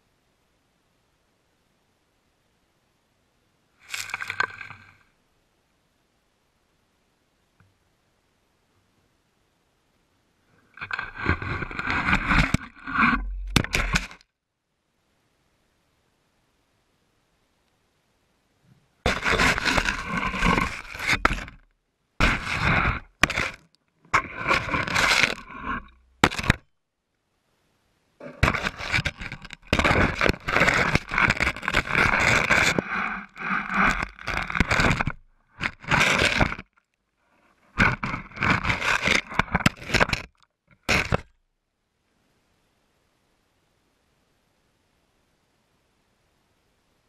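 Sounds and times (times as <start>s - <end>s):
camera scraping on sandy ground: 3.8s - 5.0s, 10.8s - 14.2s, 19.0s - 21.6s, 22.2s - 26.7s, 28.2s - 36.7s, 37.3s - 41.3s.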